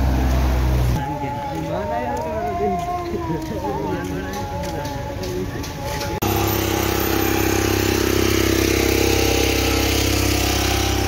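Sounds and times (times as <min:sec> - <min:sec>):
street noise: 0:00.0 - 0:11.0
vehicle engines idling: 0:00.0 - 0:11.0
distant call to prayer: 0:01.0 - 0:07.2.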